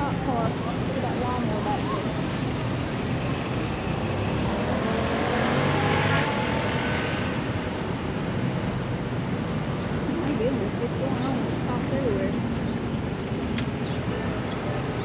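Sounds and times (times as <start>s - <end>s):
road traffic noise: 0.0s - 15.0s
vehicle passing: 0.0s - 15.0s.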